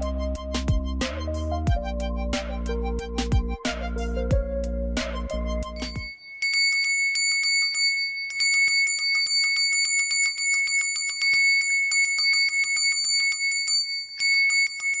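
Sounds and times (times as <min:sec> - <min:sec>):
small metal bell ringing: 0:05.8 - 0:15.0.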